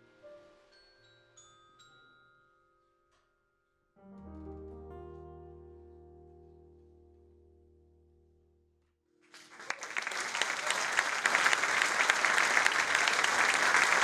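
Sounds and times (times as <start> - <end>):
keyboard chord: 4.0 - 8.4
audience applause: 9.3 - 14.0.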